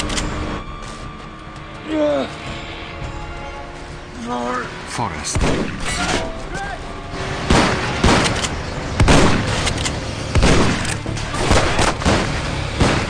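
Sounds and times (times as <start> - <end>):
gunshots: 5.3 - 6.3, 7.2 - 13.0.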